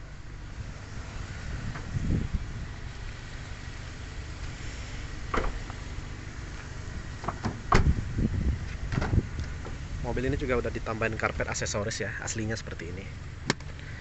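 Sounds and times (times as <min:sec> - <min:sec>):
low rumble: 0:00.0 - 0:11.7
car door clicks and knocks: 0:05.3 - 0:05.6, 0:07.2 - 0:08.0, 0:08.8 - 0:09.8.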